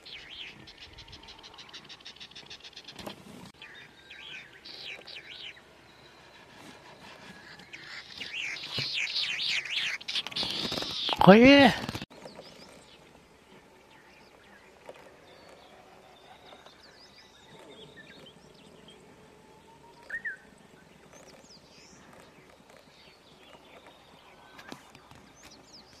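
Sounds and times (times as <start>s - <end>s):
distant bird chirps and whistles: 0.0s - 11.3s, 13.8s - 26.0s
rising bird call: 19.2s - 20.5s.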